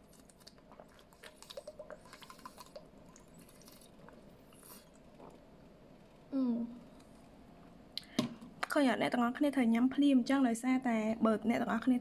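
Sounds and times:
gulping and swallowing: 0:00.4 - 0:05.5.

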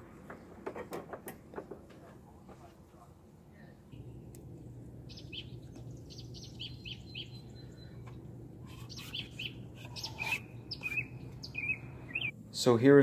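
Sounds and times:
faint low hum: 0:01.6 - 0:13.0
birds chirping: 0:03.5 - 0:12.4.

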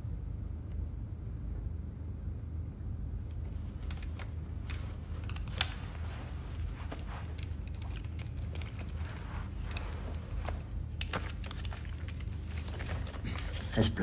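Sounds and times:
low room hum: 0:00.0 - 0:14.0
small clicks and rustles: 0:03.2 - 0:14.0.

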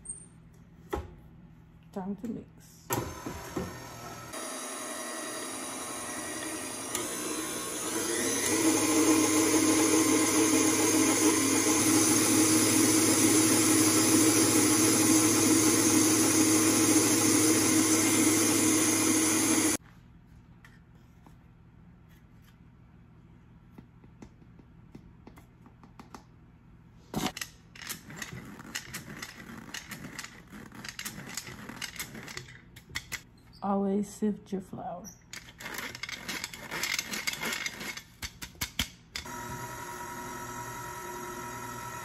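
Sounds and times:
stand mixer motor hum: 0:03.0 - 0:19.8, 0:39.3 - 0:42.0.

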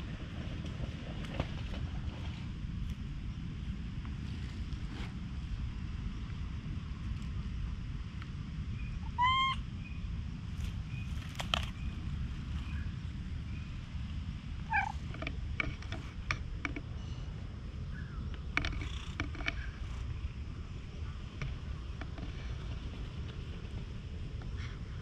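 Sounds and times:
wind rumble on microphone: 0:00.0 - 0:25.0
cat meowing: 0:09.0 - 0:09.6, 0:14.6 - 0:15.0.

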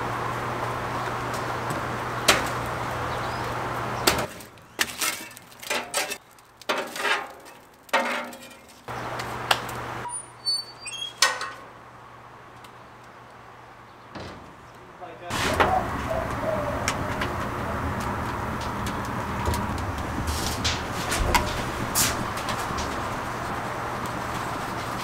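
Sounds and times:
logs clattering into steel firebox: 0:01.3 - 0:02.8, 0:03.5 - 0:10.2, 0:11.0 - 0:11.8, 0:14.1 - 0:25.0
fire poker knocking and scraping wood: 0:04.0 - 0:09.9, 0:14.1 - 0:25.0
heavy steel door clanking shut: 0:14.1 - 0:14.6.

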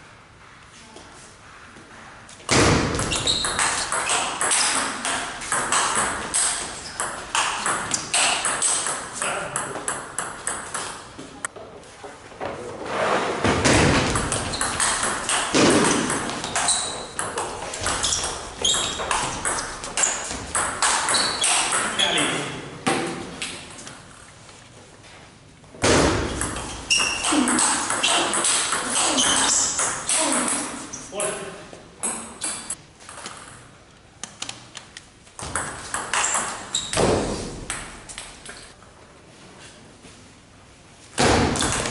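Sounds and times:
ping pong ball hitting bats: 0:02.6 - 0:11.2, 0:13.7 - 0:22.3, 0:25.8 - 0:33.7, 0:35.4 - 0:38.5
ping pong ball bouncing on table: 0:03.0 - 0:11.0, 0:14.0 - 0:21.9, 0:26.3 - 0:30.2.

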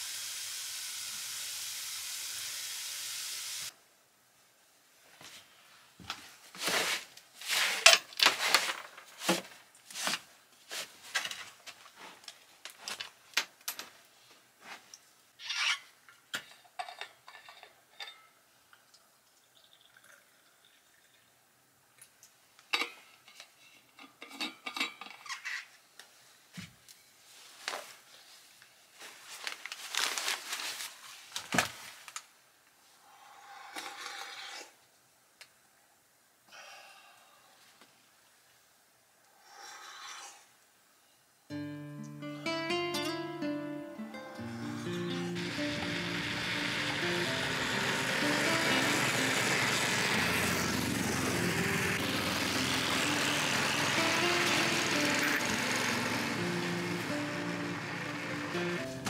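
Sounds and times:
tea pouring into a cup: 0:18.8 - 0:21.3.

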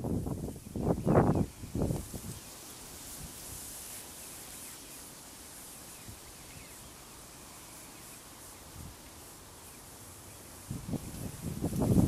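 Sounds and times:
wind rumble on microphone: 0:00.0 - 0:03.7, 0:10.6 - 0:12.0
steady hiss: 0:00.0 - 0:12.0
distant bird calls: 0:03.7 - 0:11.6.

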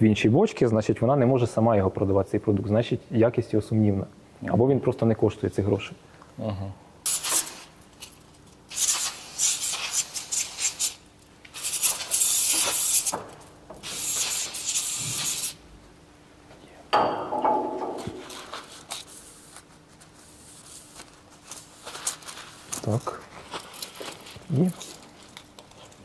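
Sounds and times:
aerosol spray can hissing: 0:07.1 - 0:07.7, 0:08.7 - 0:13.2, 0:13.8 - 0:15.6
cloth wiping tape: 0:08.7 - 0:13.2, 0:13.8 - 0:15.6, 0:18.2 - 0:25.9.

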